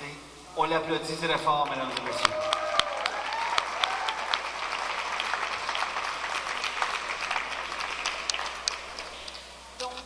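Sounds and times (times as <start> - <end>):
audience applauding: 1.5 - 9.4.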